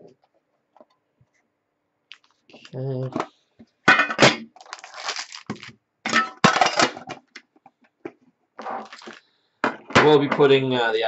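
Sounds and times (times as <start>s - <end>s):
packaging crinkling: 4.5s - 5.8s, 8.8s - 9.2s.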